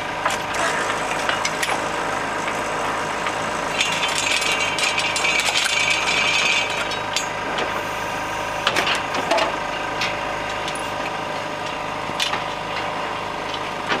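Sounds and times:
hydraulic power unit running: 0:00.0 - 0:14.0
metal gates and chains clanking: 0:03.7 - 0:07.4.

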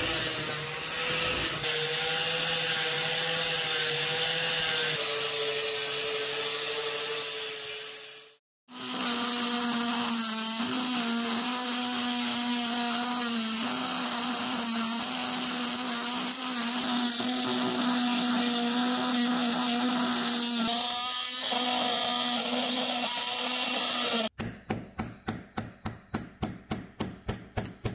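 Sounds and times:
angle grinder on steel: 0:00.0 - 0:24.4
rotary tool drilling: 0:08.8 - 0:24.4.

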